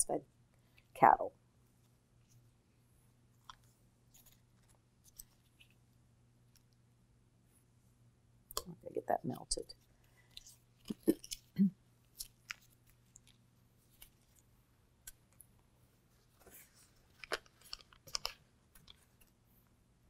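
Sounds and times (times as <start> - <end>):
faint low hum: 0.0 - 20.0
paper crinkling: 16.1 - 19.4.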